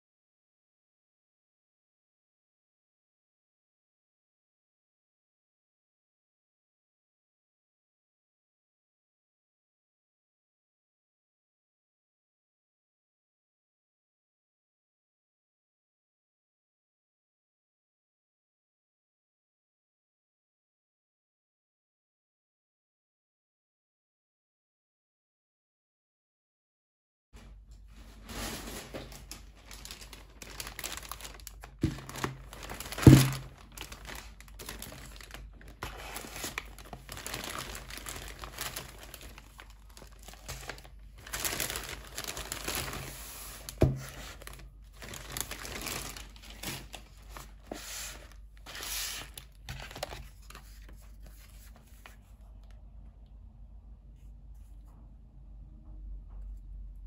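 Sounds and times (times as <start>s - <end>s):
plastic bag and paper rustling: 27.4s - 52.3s.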